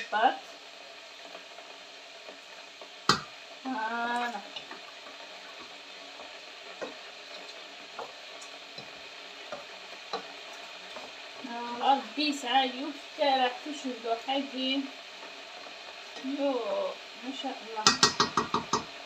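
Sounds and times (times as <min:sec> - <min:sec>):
wooden spoon stirring in pot: 0:00.0 - 0:13.7, 0:14.5 - 0:19.0
sauce sizzling: 0:00.0 - 0:19.0
spoon knocking against pot: 0:03.1 - 0:03.3, 0:17.8 - 0:18.9.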